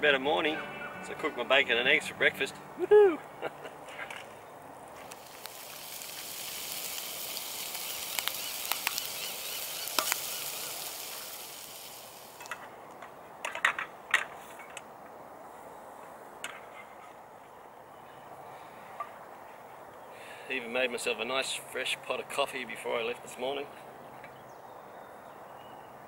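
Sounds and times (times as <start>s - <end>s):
bacon sizzling and popping: 4.9s - 12.6s.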